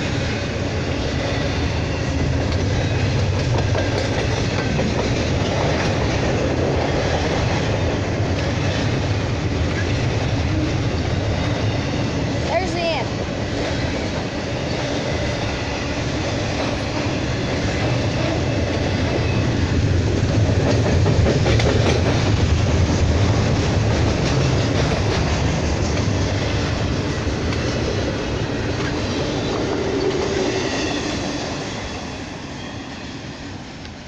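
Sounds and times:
freight train rolling past: 0.0s - 34.0s
wheels clicking over rail joints: 1.2s - 12.3s.

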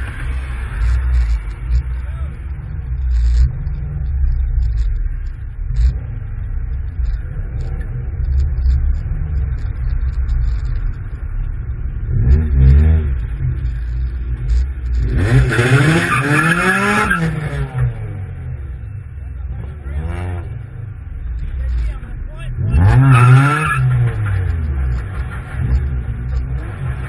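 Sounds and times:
car engine and road rumble: 0.0s - 27.0s
engine revving: 12.0s - 18.4s, 19.4s - 27.0s.

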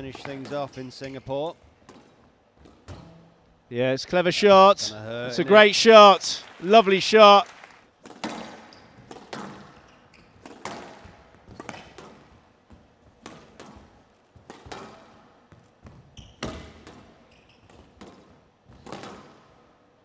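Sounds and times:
squash ball hits echoing: 0.0s - 1.2s, 8.0s - 17.2s, 17.8s - 19.5s.

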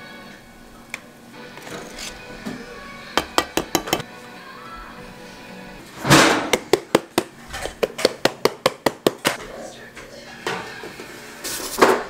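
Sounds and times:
background music: 0.0s - 9.0s
metal pan knocking on tiled counter: 3.2s - 4.0s.

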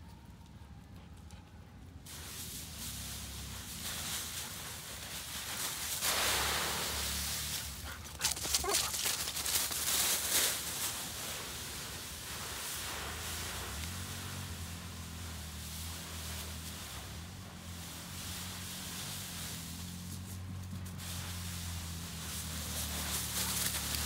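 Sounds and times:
dry leaves crunching underfoot: 2.1s - 24.0s.

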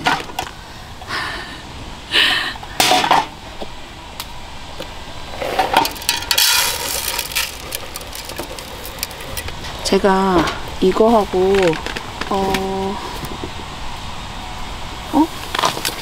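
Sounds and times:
rice pattering into metal tin: 5.5s - 9.6s
metal mess tins clattering: 5.6s - 9.2s.

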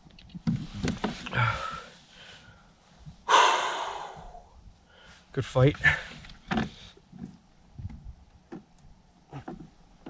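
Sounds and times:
man breathing hard: 1.3s - 2.7s, 3.3s - 5.3s.

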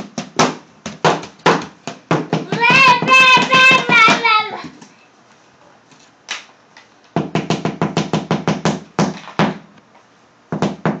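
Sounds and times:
hands drumming on cardboard box: 0.0s - 4.3s, 7.2s - 9.6s, 10.5s - 11.0s.

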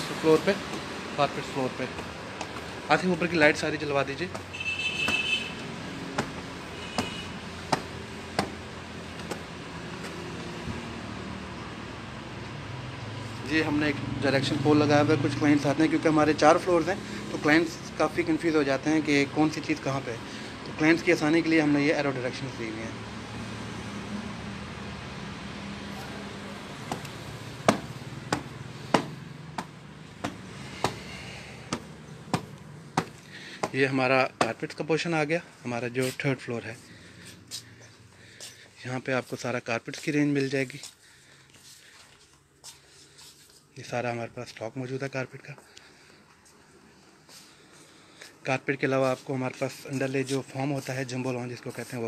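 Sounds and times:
sandal footsteps on stairs: 26.8s - 33.8s.

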